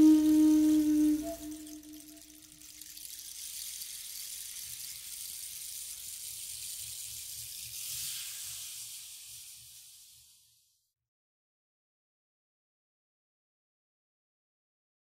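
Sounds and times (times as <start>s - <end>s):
steady high hiss: 0.0s - 10.8s.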